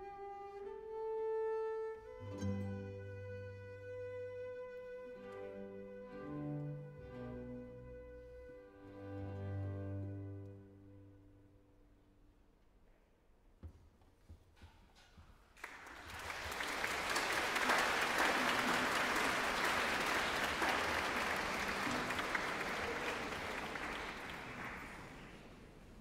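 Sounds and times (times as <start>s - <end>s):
audience applauding: 15.6s - 26.0s.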